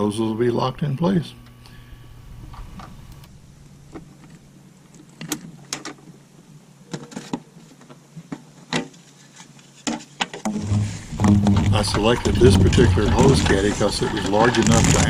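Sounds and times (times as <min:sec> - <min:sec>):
plastic knocks: 0:10.5 - 0:15.0.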